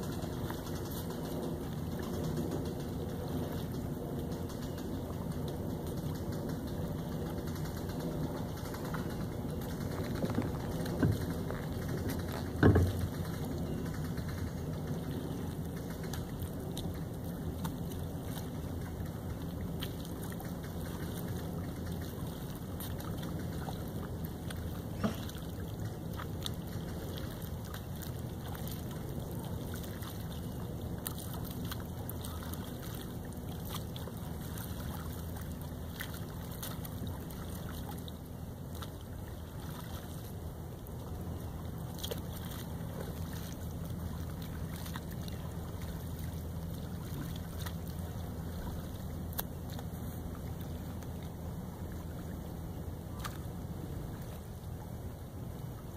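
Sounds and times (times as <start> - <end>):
lake water: 0.0 - 55.9.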